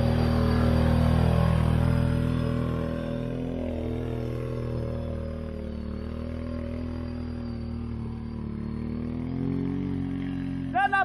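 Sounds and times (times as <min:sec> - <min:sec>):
quad bike engine running: 0:00.0 - 0:11.0.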